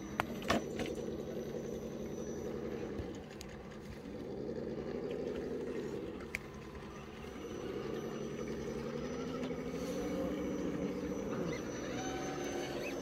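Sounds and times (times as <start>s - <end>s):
electric motor whirring: 5.9s - 13.0s.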